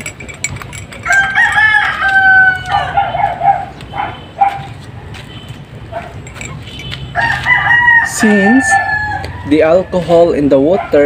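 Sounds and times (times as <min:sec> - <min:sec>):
rooster crowing: 0:01.0 - 0:03.6, 0:07.1 - 0:10.5.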